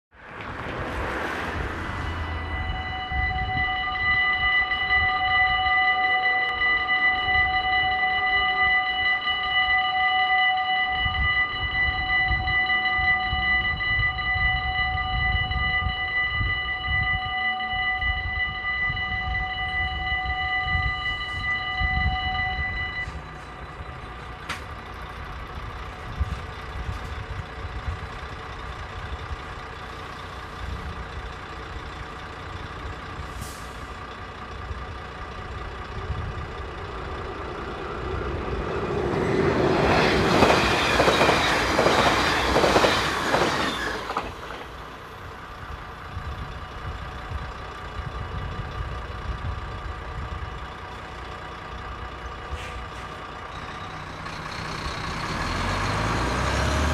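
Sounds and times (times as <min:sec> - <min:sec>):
level-crossing warning bell ringing: 0:01.6 - 0:33.3, 0:33.9 - 0:56.4
train wheels clattering over rails: 0:36.8 - 0:45.0.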